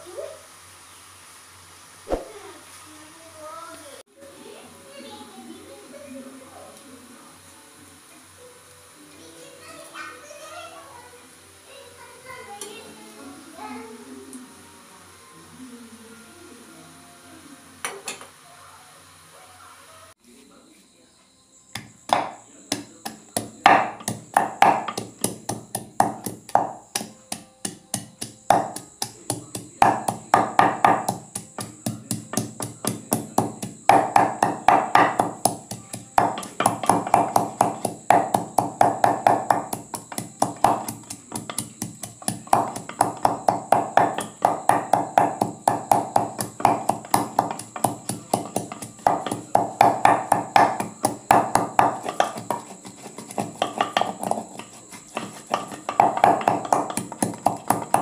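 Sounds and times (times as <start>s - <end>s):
wooden pestle pounding in mortar: 21.8s - 58.0s.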